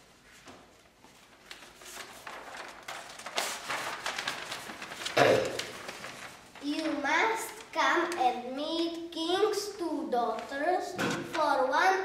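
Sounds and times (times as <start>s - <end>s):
paper rustling and crackling: 0.4s - 8.5s.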